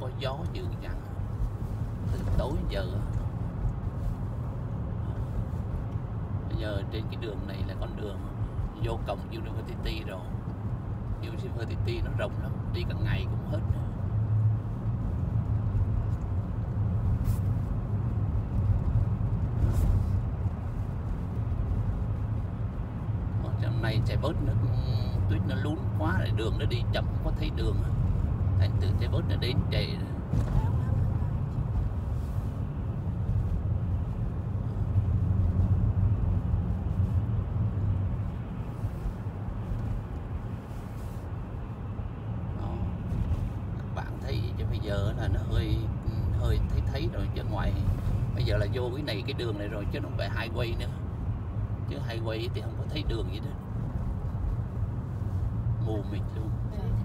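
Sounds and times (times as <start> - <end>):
car engine rumble: 0.0 - 57.0
tyres on snowy road: 0.0 - 57.0.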